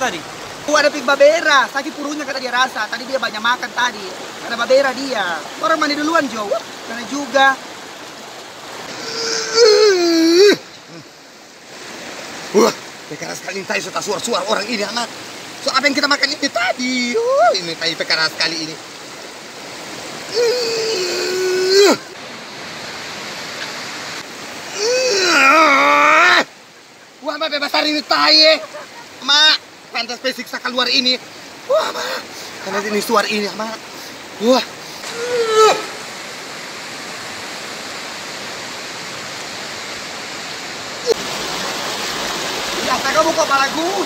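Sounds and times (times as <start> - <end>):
river rushing over stones: 0.0 - 44.0
person's drawn-out vocal cry: 8.9 - 11.1, 20.3 - 22.2, 24.7 - 26.5, 31.7 - 32.3, 35.1 - 36.1
person exclaiming: 9.0 - 11.1, 12.5 - 12.8, 16.6 - 17.7, 20.3 - 22.2, 24.7 - 26.5, 31.7 - 32.3, 34.4 - 36.1.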